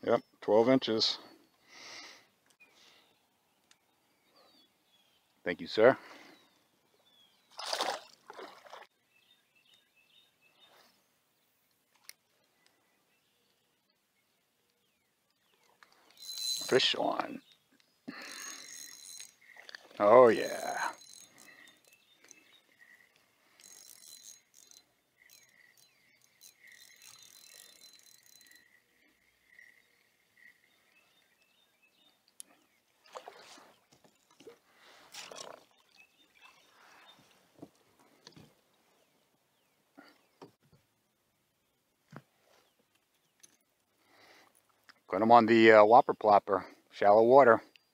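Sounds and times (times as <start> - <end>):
fish splashing into water: 7.5 - 8.9
water splashes: 7.5 - 8.9, 33.0 - 37.0
fishing reel cranking whine: 15.9 - 17.5, 18.1 - 31.6.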